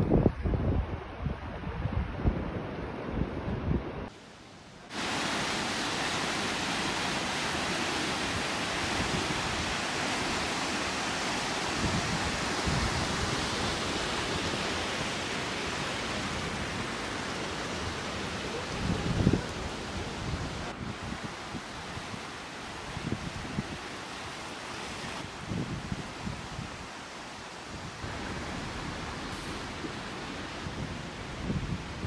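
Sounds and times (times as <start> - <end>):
wind buffeting microphone: 0.0 - 4.1, 8.8 - 15.2, 25.2 - 26.8, 27.7 - 32.0
floodwater rushing: 4.8 - 32.0.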